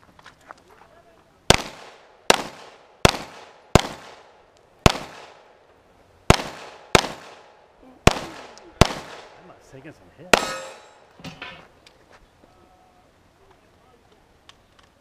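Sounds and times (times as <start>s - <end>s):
handgun shots echoing: 10.3s - 11.2s.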